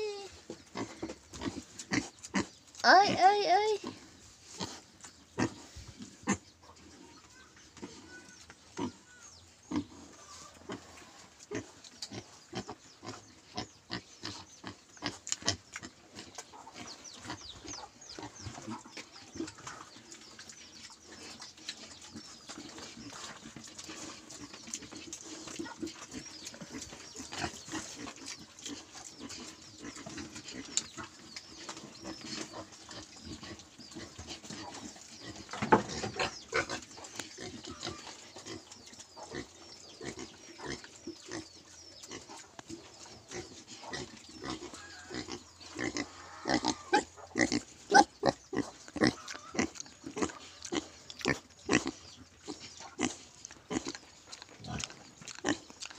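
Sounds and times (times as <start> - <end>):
pig grunting: 43.3 - 55.9.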